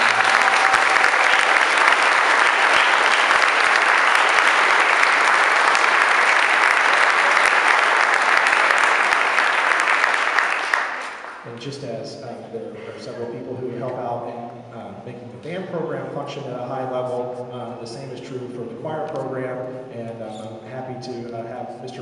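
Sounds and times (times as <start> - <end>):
audience applause: 0.0 - 11.5.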